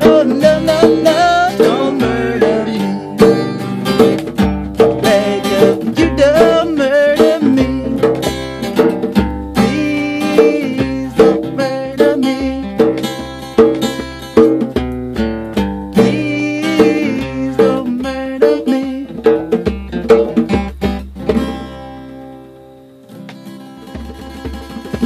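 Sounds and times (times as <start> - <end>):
plucked string instrument picking: 0.0 - 25.0.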